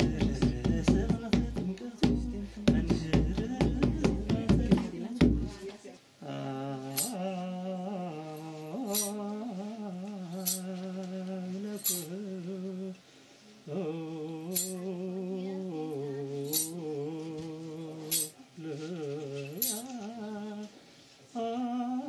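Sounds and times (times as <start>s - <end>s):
low voice chanting: 0.0s - 22.0s
bright metallic jingle: 8.9s - 9.2s, 10.3s - 10.7s, 11.7s - 12.2s, 14.5s - 14.8s, 16.5s - 16.8s, 19.6s - 19.9s.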